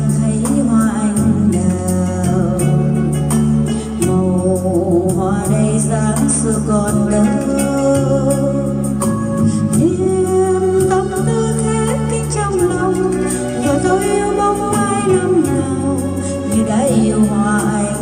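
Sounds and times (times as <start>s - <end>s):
sustained bass notes: 0.0s - 18.0s
person singing: 9.8s - 18.0s.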